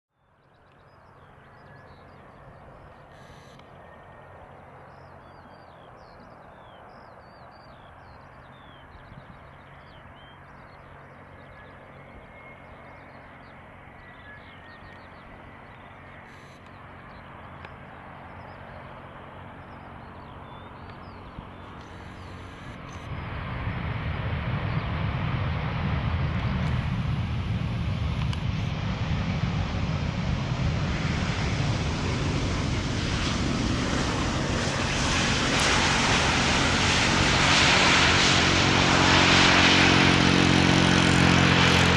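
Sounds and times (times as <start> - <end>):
faint birds chirping: 0.1 - 23.9
jet plane landing rumble: 0.2 - 41.9.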